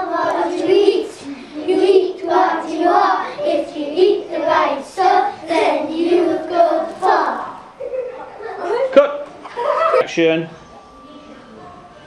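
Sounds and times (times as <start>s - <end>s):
children chanting a rap: 0.0s - 7.7s.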